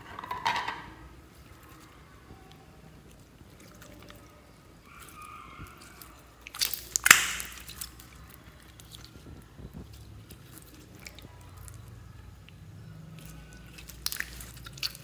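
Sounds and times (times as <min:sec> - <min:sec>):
slime squishing: 0:01.1 - 0:15.0
beads clicking and popping: 0:06.5 - 0:08.0.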